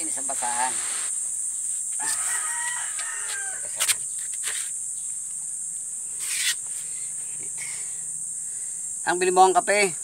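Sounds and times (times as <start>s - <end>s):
short rustle: 0.0s - 2.3s
insects chirring: 0.0s - 10.0s
rooster crowing: 2.0s - 3.8s.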